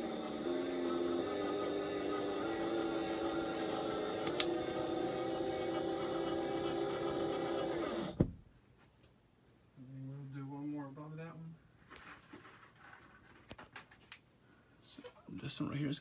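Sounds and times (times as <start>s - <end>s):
cordless drill driving screw: 1.0s - 8.2s
sharp clicks: 4.2s - 4.5s.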